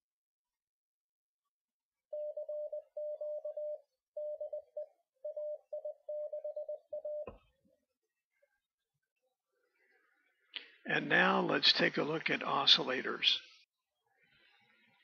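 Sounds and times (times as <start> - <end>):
morse code tone: 2.1 - 7.4.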